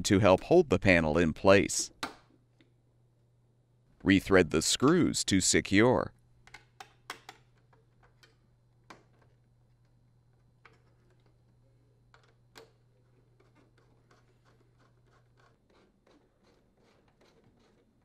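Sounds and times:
screwdriver clicks and scrapes on metal: 6.5s - 18.0s.

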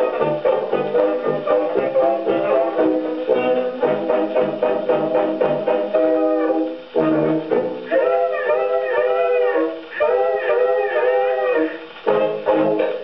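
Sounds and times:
dance band on gramophone record: 0.0s - 13.0s.

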